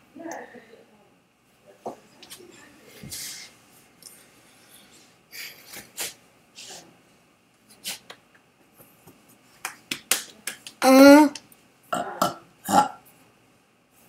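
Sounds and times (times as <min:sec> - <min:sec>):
child vocalizing: 0:10.8 - 0:11.4.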